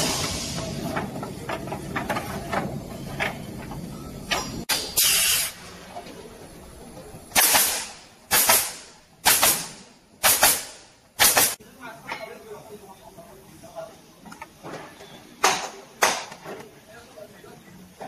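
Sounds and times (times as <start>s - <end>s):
compressed air hissing blasts: 0.0s - 0.9s, 4.7s - 5.7s, 7.3s - 11.6s.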